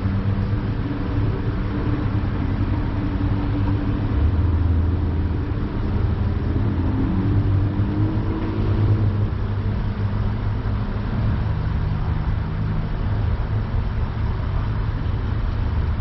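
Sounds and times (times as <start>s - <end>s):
car engine running: 0.0s - 16.0s
road rumble: 0.0s - 16.0s.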